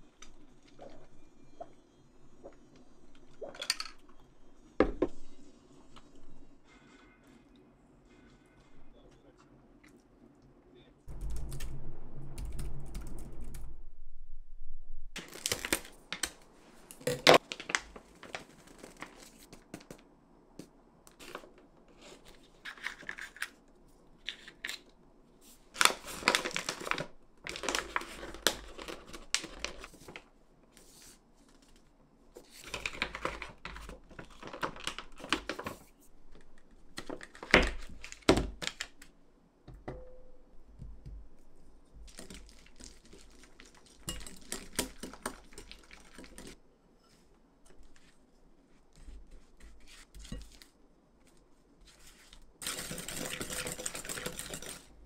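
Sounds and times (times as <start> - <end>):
low hum: 11.1 - 15.2
plastic and paper packaging rustling: 15.2 - 20.0, 25.5 - 39.1.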